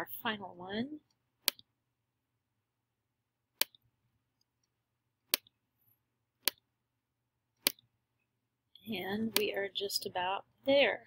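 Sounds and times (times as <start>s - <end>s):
computer mouse clicks: 3.6s - 3.8s, 7.6s - 7.9s.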